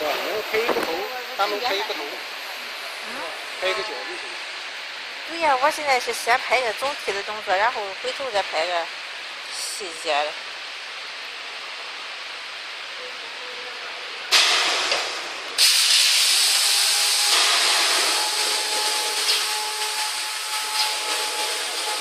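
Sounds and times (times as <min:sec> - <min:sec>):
loud air blast: 0:14.3 - 0:22.0
compressed air hissing: 0:15.6 - 0:22.0.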